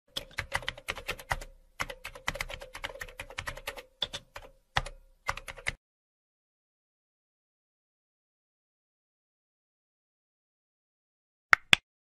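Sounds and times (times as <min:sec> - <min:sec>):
keyboard typing: 0:00.1 - 0:05.8.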